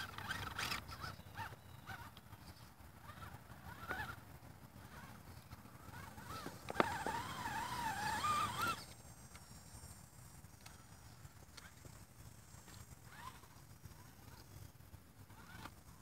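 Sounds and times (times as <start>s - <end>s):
electric motor whining: 3.0s - 4.2s, 4.8s - 9.5s.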